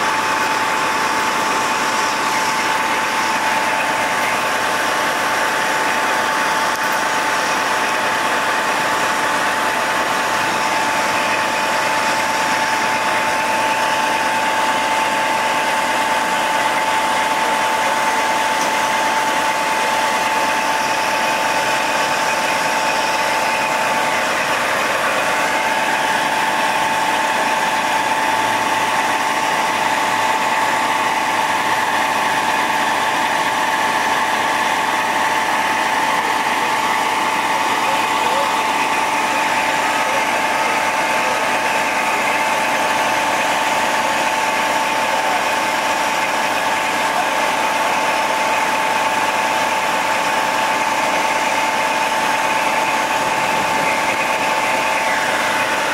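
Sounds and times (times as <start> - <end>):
engine idling: 0.0 - 55.9
high-pitched whine: 48.1 - 55.9.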